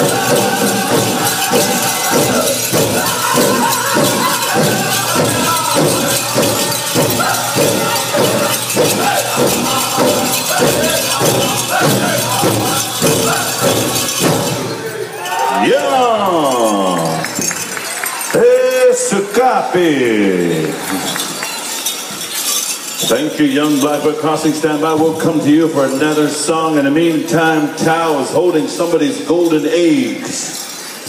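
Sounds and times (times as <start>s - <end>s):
steady drumbeat: 0.0s - 14.9s
group singing: 0.0s - 15.1s.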